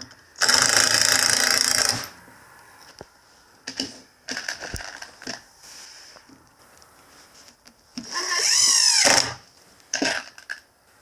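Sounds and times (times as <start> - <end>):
cordless driver driving a screw: 8.0 - 9.4.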